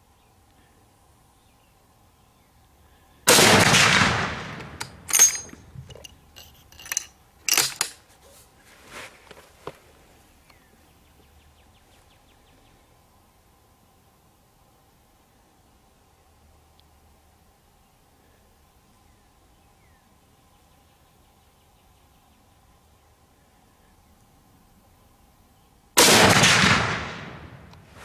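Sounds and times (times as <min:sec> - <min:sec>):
rifle shot: 0:03.3 - 0:05.5, 0:26.0 - 0:28.0
rifle bolt clicks: 0:04.5 - 0:08.0.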